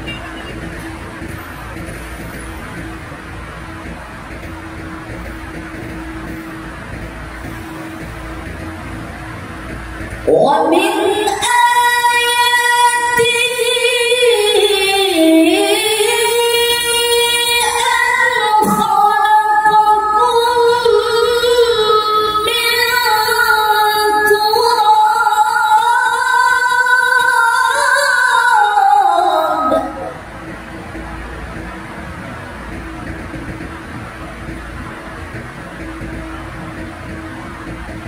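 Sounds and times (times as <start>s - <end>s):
man reciting melodically: 10.2s - 11.5s.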